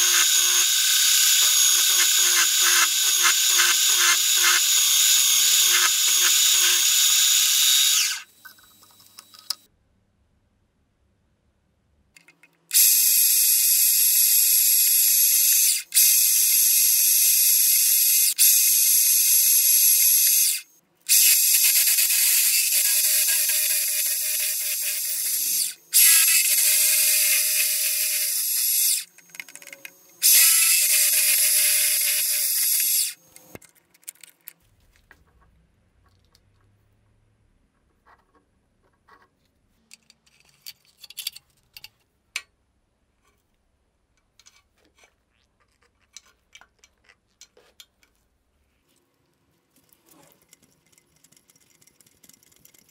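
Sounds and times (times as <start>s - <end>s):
drill press boring metal: 0.0s - 8.3s, 14.8s - 33.2s.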